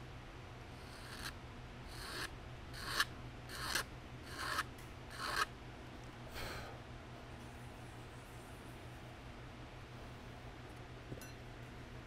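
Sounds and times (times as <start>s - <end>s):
hand file rasping on wood: 1.9s - 5.5s.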